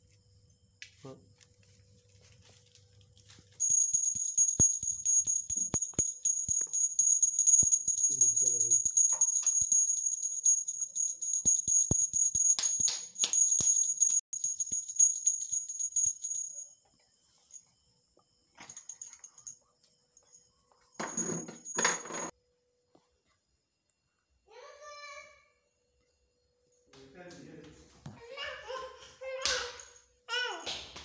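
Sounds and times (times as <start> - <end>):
hand bell ringing rapidly: 3.6 - 16.6.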